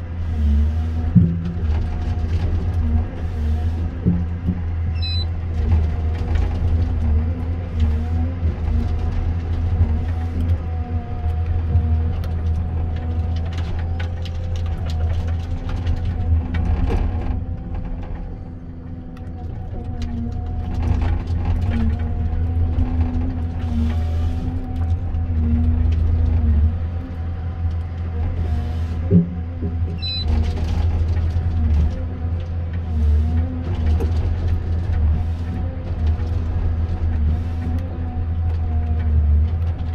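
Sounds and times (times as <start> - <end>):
diesel engine rumbling: 0.0 - 39.9
harvester head knocks and cracks: 1.1 - 2.8.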